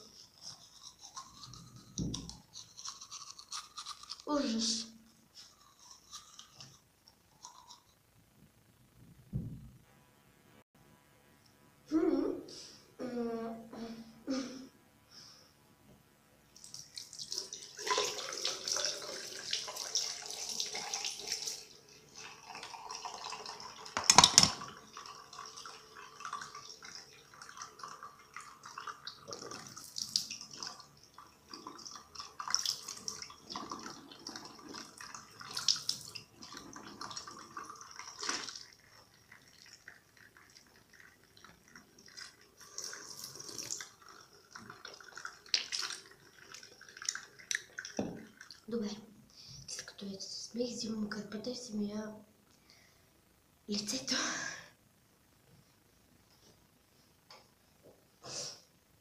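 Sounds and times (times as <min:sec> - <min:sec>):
tap water running into sink: 0:16.6 - 0:48.7.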